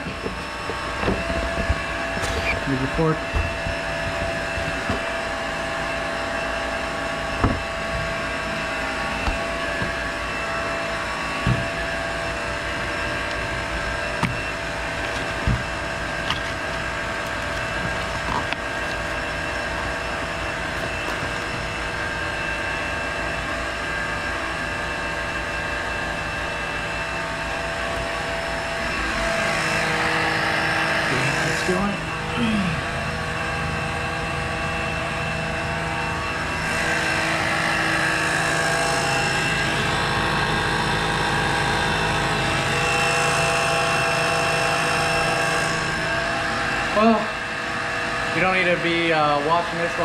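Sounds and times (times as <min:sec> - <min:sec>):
electric pump running: 0:00.0 - 0:50.0
cardboard packaging knocks: 0:03.2 - 0:05.2, 0:07.4 - 0:08.2, 0:09.2 - 0:10.2, 0:14.2 - 0:19.3.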